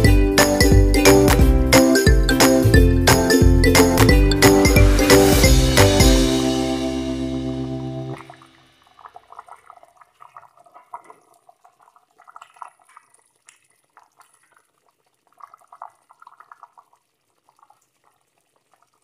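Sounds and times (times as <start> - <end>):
sauce bubbling in a pot: 8.3 - 19.0.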